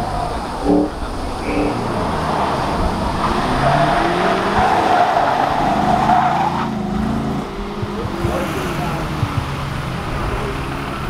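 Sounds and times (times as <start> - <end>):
car engine under load: 0.0 - 11.0
tyres squealing: 0.0 - 11.0.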